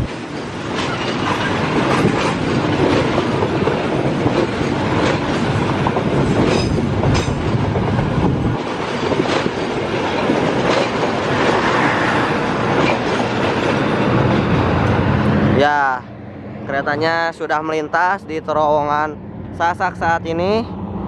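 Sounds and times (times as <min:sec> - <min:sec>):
wheels clacking over rail joints: 0:00.0 - 0:15.4
train wheels rumbling on rails: 0:00.0 - 0:21.0.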